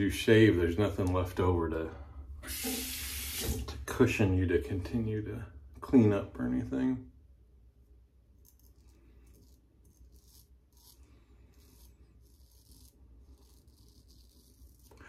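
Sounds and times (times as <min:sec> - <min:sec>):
razor scraping stubble: 0:08.3 - 0:15.0.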